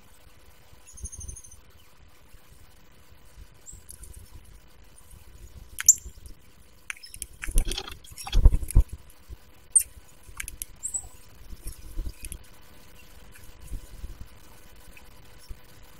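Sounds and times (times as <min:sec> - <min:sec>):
high bird chips: 0:06.9 - 0:08.5
woodpecker pecking and scraping: 0:07.0 - 0:08.8.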